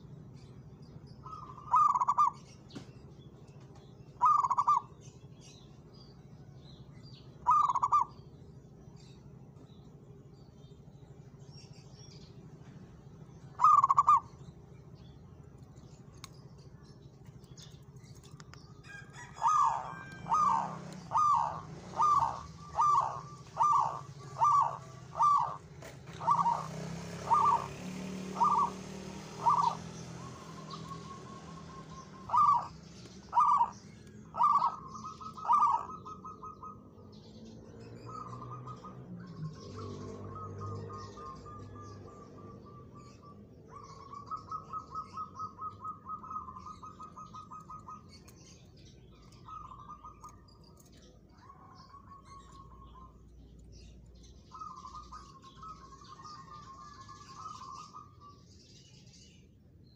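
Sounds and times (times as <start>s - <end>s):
dove cooing: 1.2s - 2.4s, 4.2s - 5.0s, 7.4s - 8.2s, 13.6s - 14.4s, 18.9s - 37.0s, 38.0s - 48.6s, 49.2s - 53.7s, 54.5s - 58.4s.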